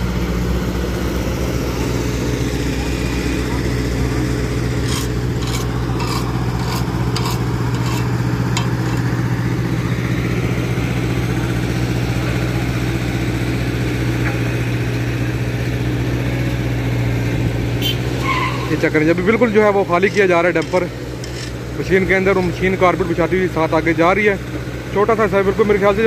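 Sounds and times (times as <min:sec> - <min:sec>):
heavy diesel engines running: 0:00.0 - 0:26.0.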